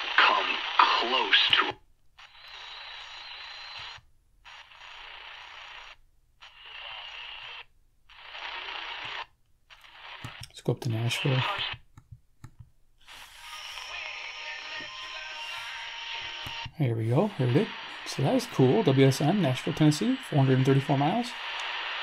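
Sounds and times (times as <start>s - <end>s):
radio static hiss: 0.0s - 11.8s, 13.0s - 22.0s
music from small radio speaker: 13.1s - 16.7s.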